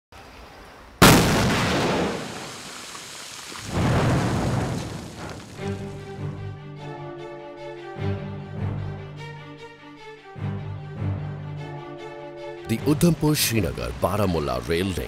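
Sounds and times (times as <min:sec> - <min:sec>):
explosion blast with rumble: 0:01.0 - 0:02.9, 0:03.6 - 0:05.8
rolling rumble: 0:01.0 - 0:06.3
music: 0:05.6 - 0:15.0.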